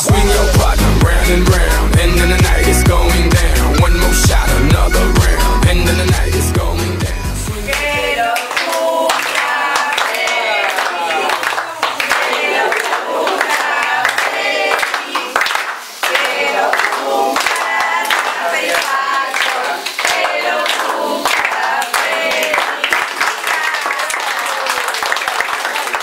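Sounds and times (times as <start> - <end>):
group of people singing: 0.0 - 23.6
hand clapping: 7.7 - 26.0.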